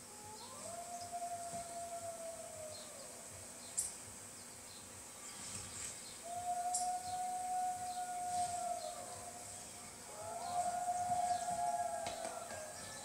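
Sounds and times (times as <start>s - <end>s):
wolves howling: 0.0s - 3.2s, 6.2s - 13.0s.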